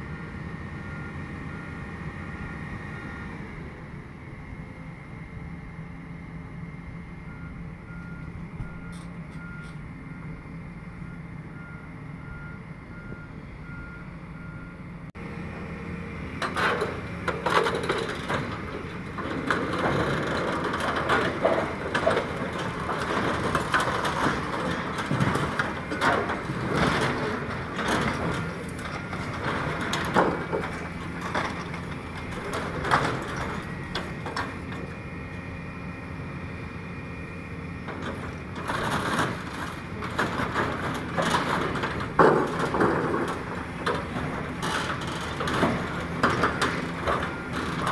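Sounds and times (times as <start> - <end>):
reversing alarm beeping: 0.0 - 3.4, 6.5 - 15.1, 18.2 - 35.0
diesel excavator engines running: 0.0 - 47.9
steel frame clanking and knocking: 16.4 - 35.0, 37.8 - 47.9.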